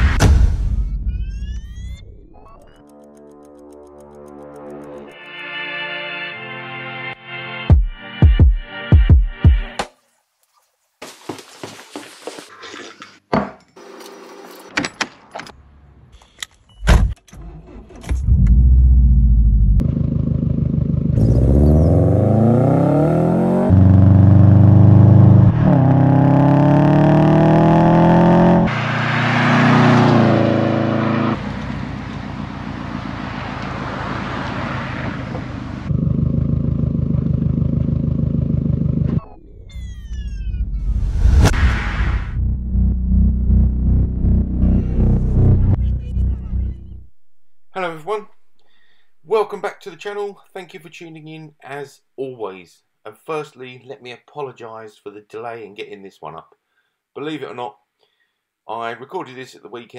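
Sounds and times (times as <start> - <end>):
sharp clicks: 2.4 - 5.2
car engine starting and revving: 17.4 - 39.6, 40.3 - 47.2.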